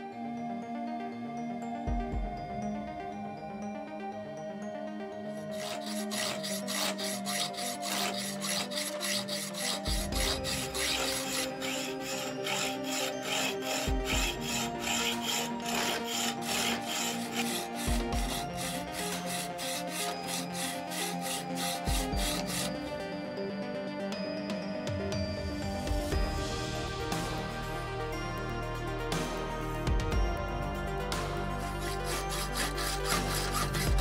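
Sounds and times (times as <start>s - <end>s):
background music: 0.0s - 34.0s
hacksaw cutting metal: 5.5s - 22.8s, 31.7s - 34.0s.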